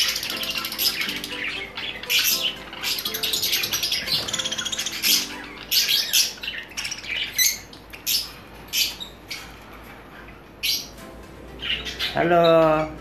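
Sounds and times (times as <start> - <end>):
parakeets squawking: 0.0 - 13.0.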